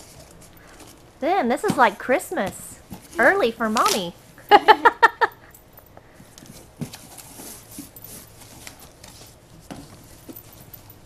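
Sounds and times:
cardboard rustling and scraping: 0.0s - 4.0s, 6.2s - 11.0s.

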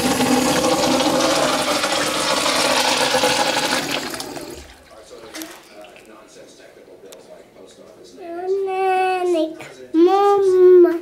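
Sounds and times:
urinal flushing: 0.0s - 6.1s.

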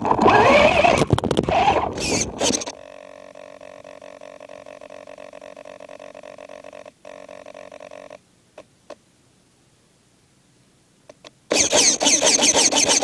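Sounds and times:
electric motor buzzing: 0.0s - 8.2s, 11.5s - 13.0s.

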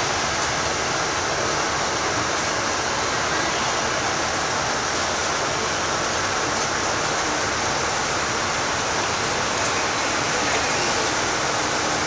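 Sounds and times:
bus road and cabin noise: 0.0s - 12.0s.

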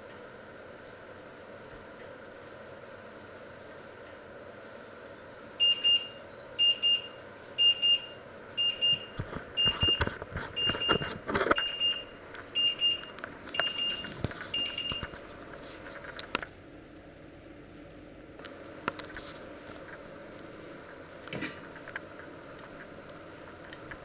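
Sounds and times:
timer alarm beeping: 5.6s - 15.1s.

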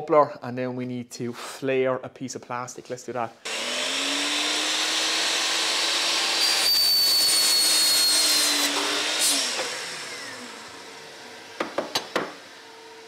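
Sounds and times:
mitre saw motor whine: 3.5s - 13.0s.

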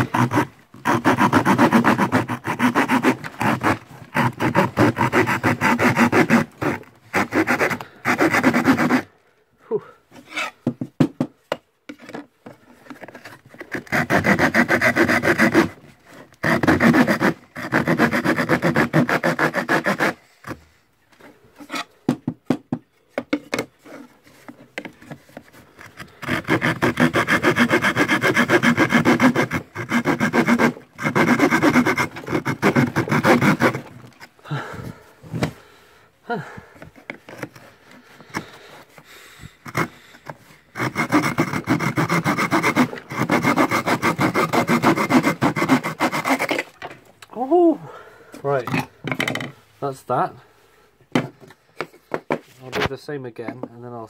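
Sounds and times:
hand saw cutting plywood: 0.0s - 9.1s, 10.2s - 10.7s, 11.9s - 22.0s, 23.2s - 35.7s, 36.7s - 47.0s
soft saw scraping: 0.0s - 9.1s, 10.1s - 10.6s, 11.9s - 22.0s, 23.7s - 35.6s, 36.8s - 46.8s.

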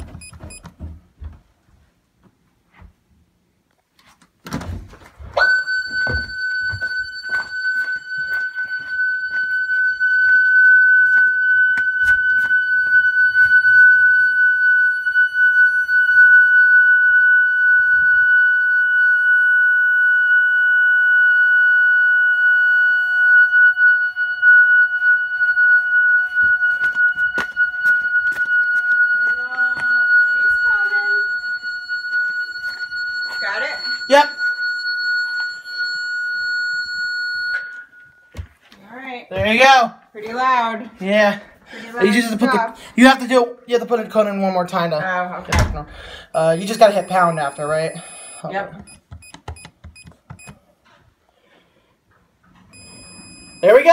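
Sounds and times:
alarm siren high-pitched tone: 5.4s - 38.5s, 46.4s - 48.5s
knocks and clicks: 48.8s - 50.6s.

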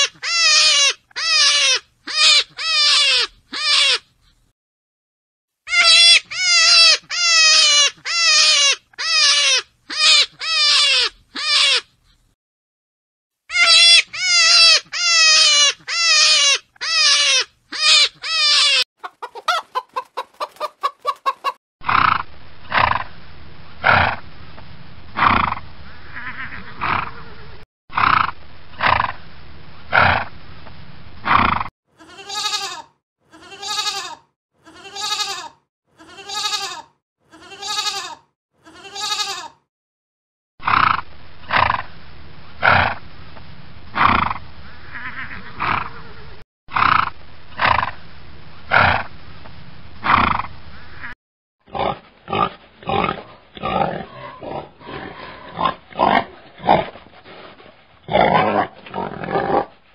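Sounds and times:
animal calls: 5.7s - 11.9s, 13.5s - 23.1s, 25.2s - 29.0s, 44.0s - 48.0s, 51.8s - 56.9s
pig grunting: 21.8s - 23.1s, 23.8s - 24.2s, 25.2s - 25.6s, 26.2s - 29.1s, 40.6s - 41.9s, 42.6s - 43.0s, 43.9s - 48.0s, 48.7s - 49.1s, 50.0s - 50.5s, 51.7s - 59.8s
sheep bleating: 26.1s - 27.0s, 32.0s - 39.6s, 44.9s - 46.0s.

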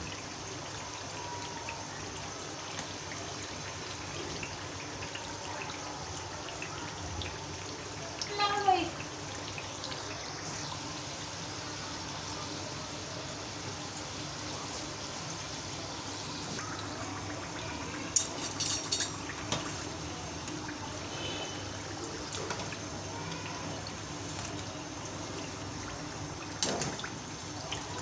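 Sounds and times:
deep-frying sizzle and bubble: 0.0s - 28.0s
metal clinks and scrapes on pan: 18.2s - 19.2s.

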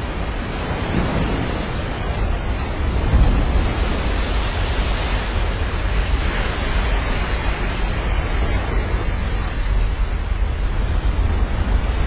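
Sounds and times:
ocean wave breaking: 0.0s - 12.0s
wind buffeting microphone: 0.0s - 12.0s.

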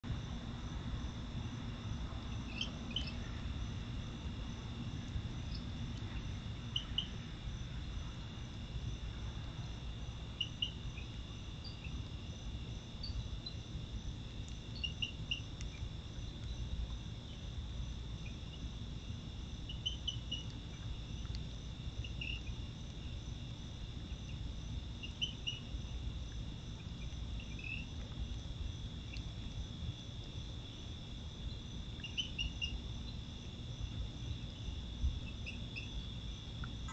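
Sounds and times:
low steady hum: 0.0s - 36.9s
crickets trilling: 0.1s - 36.9s
short insect chirps: 2.4s - 3.4s, 14.6s - 16.7s, 31.4s - 33.2s.

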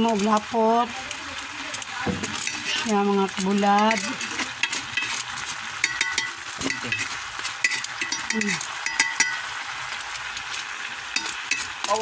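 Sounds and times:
chicken sizzling in a pot: 0.0s - 12.0s
utensil scraping a pot: 1.7s - 9.4s, 11.1s - 12.0s.

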